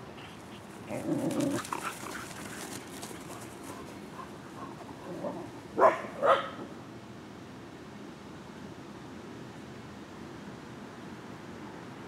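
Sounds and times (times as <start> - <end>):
dog barking: 5.8 - 6.6.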